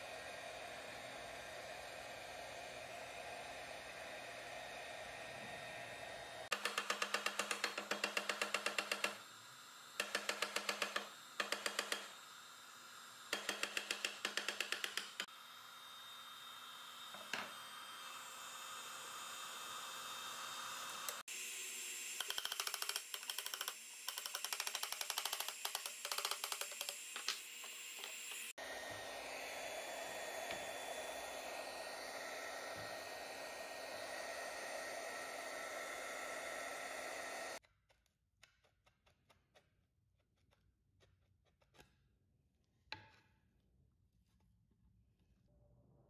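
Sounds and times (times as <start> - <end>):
heat gun blowing: 0.0 - 37.6.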